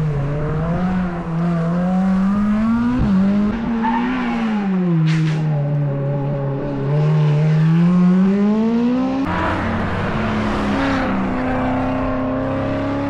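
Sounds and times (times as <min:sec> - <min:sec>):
race car engine accelerating: 0:06.6 - 0:13.0.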